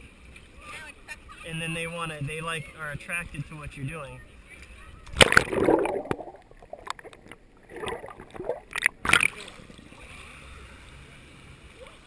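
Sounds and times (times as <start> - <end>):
muffled underwater rush: 4.8 - 12.0
seawater sloshing and splashing: 5.1 - 10.6.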